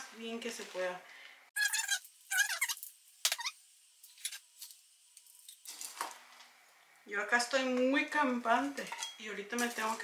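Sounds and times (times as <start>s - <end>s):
potting soil rustling: 8.4s - 10.0s.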